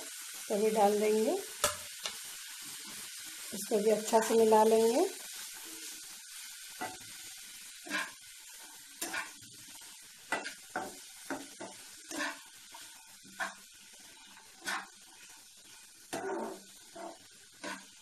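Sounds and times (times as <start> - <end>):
food sizzling in frying pan: 0.0 - 18.0
metal spatula scraping pan: 7.8 - 8.2, 9.0 - 9.4, 10.3 - 15.3, 16.1 - 18.0.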